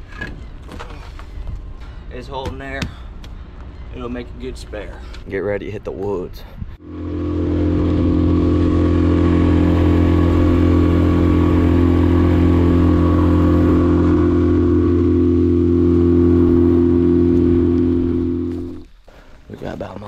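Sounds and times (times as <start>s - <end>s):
vehicle engine humming: 3.0s - 19.0s.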